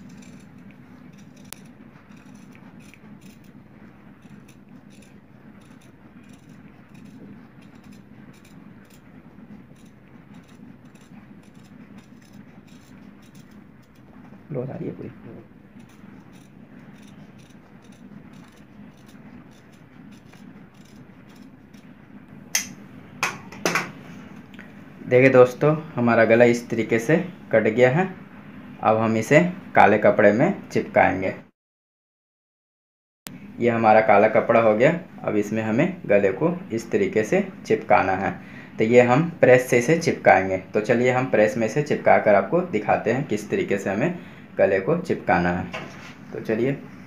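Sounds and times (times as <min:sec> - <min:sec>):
shears snipping fabric: 0:00.0 - 0:14.3, 0:15.7 - 0:22.8
steady low hum: 0:00.0 - 0:31.5, 0:33.3 - 0:47.0.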